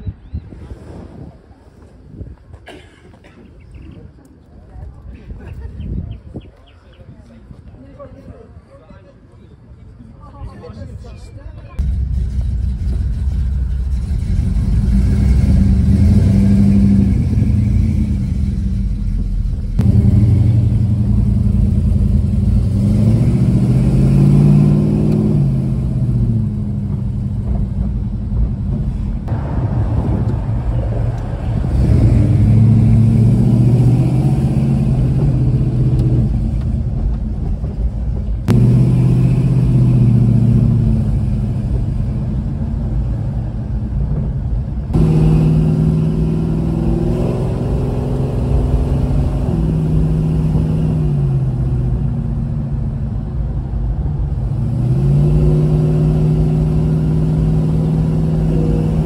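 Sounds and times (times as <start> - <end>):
car engine heard from inside: 55.4 - 59.0.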